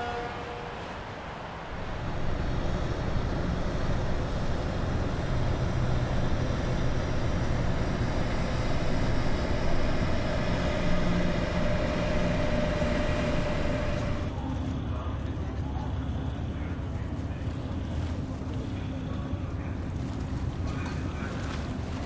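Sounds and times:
locomotive mechanical rumble: 0.0 - 22.0
thin mechanical whine: 1.5 - 15.2.

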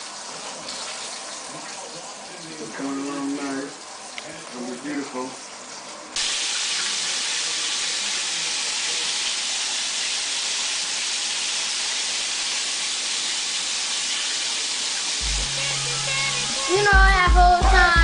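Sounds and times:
food sizzling in oil: 5.5 - 17.0
low bass line music: 15.2 - 18.0.

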